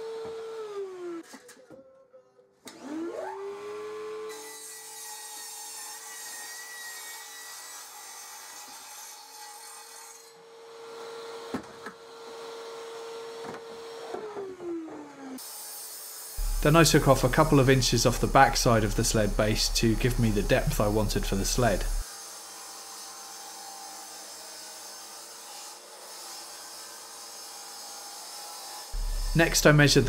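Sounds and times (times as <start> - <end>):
saw blade cutting board: 4.3 - 11.2, 15.4 - 30.0
mitre saw motor whine: 16.4 - 22.0, 29.0 - 30.0.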